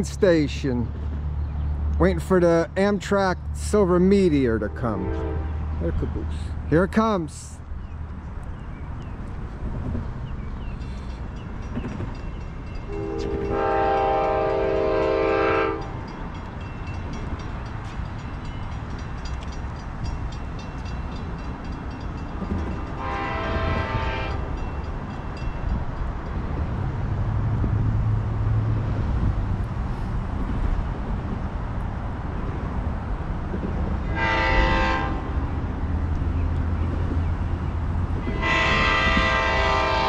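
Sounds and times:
locomotive rumble: 0:00.0 - 0:40.0
train horn blasts: 0:04.6 - 0:05.8, 0:12.9 - 0:16.1, 0:23.0 - 0:24.6, 0:34.0 - 0:35.4, 0:38.2 - 0:40.0.

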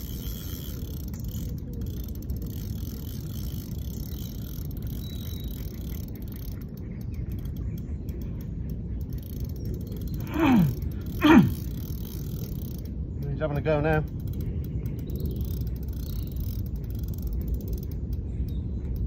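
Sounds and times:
fishing reel whirring and clicking: 0:00.0 - 0:19.0
steady low rumble: 0:00.0 - 0:19.0.

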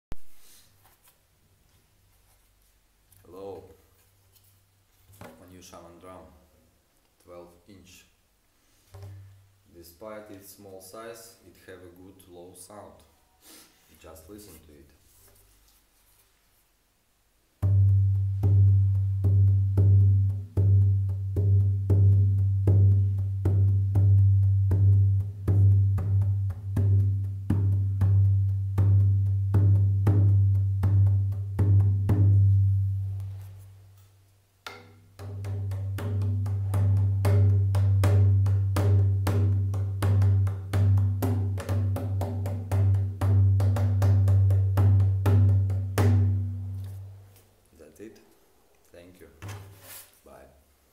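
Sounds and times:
frame drum booming beat: 0:17.6 - 0:32.8, 0:35.2 - 0:46.7.

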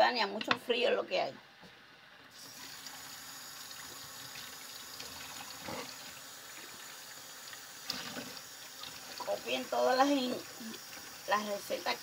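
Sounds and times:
kitchen tap running: 0:02.3 - 0:12.0.

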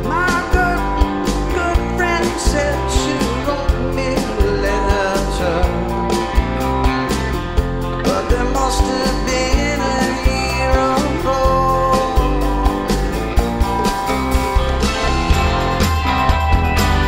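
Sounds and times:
man singing: 0:00.0 - 0:06.1, 0:08.0 - 0:13.2
steady drum beat: 0:00.0 - 0:17.0
strummed guitar: 0:00.0 - 0:17.0.

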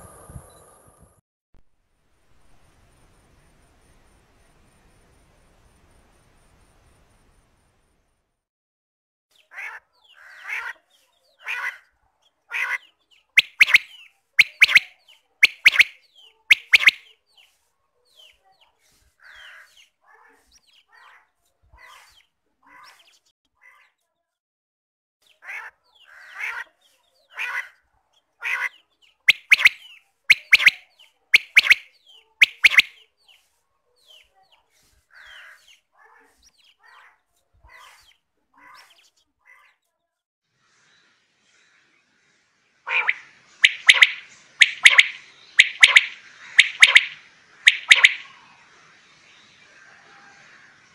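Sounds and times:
quail calling: 0:13.4 - 0:17.0, 0:29.3 - 0:33.0, 0:42.9 - 0:48.4.

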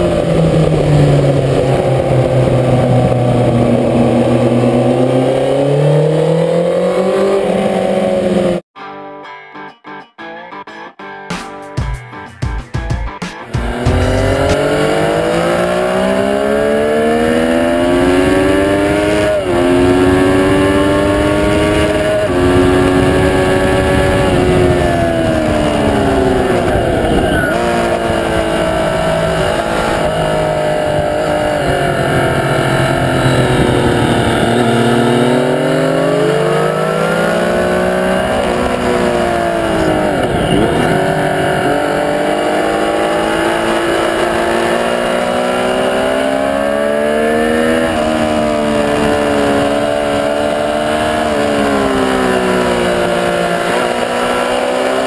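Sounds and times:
motorcycle engine at full throttle: 0:00.0 - 0:08.7, 0:13.4 - 0:55.0
wind rush: 0:13.6 - 0:54.2.

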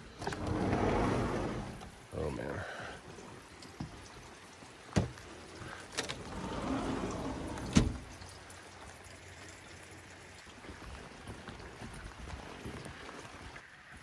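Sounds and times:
heavy rain falling: 0:00.0 - 0:08.3
water pouring and splashing: 0:00.0 - 0:14.0.

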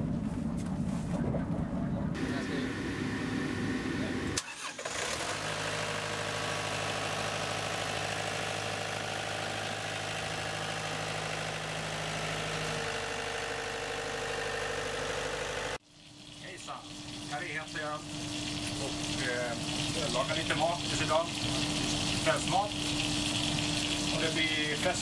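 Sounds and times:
diesel engine humming: 0:00.0 - 0:15.8.

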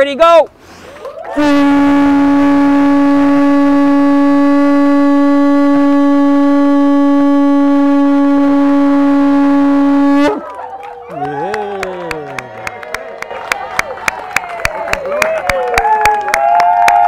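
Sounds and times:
conch shell horn note: 0:01.4 - 0:10.4.

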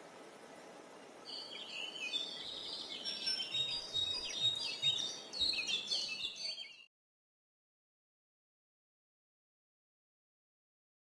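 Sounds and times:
birds chirping and singing: 0:01.3 - 0:06.9.

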